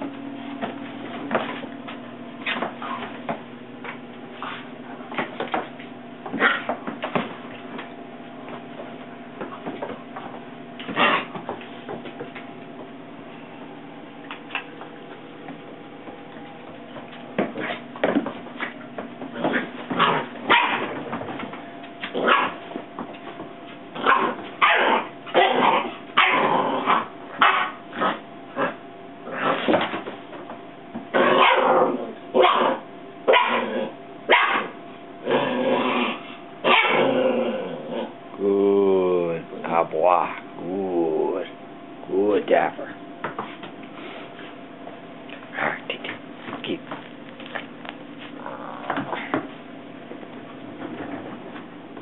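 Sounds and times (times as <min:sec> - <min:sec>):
puppy yapping and growling: 0:06.3 - 0:06.8, 0:10.9 - 0:11.4, 0:19.4 - 0:21.1, 0:22.0 - 0:22.7, 0:23.9 - 0:29.7, 0:31.1 - 0:38.2.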